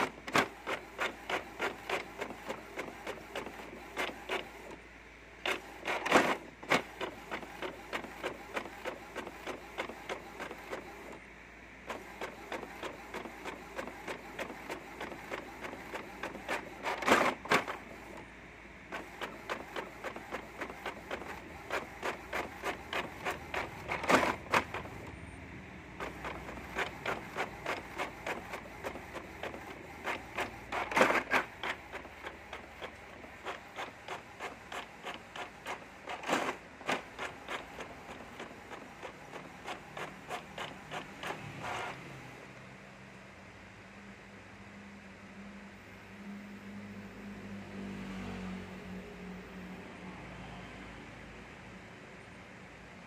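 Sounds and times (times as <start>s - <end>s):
printer carriage ticking: 0.0s - 4.8s, 5.4s - 11.2s, 11.9s - 18.2s, 19.0s - 25.1s, 26.0s - 42.0s
printer clatters: 0.0s - 4.8s, 5.4s - 11.2s, 11.9s - 18.2s, 18.9s - 25.1s, 26.0s - 42.3s.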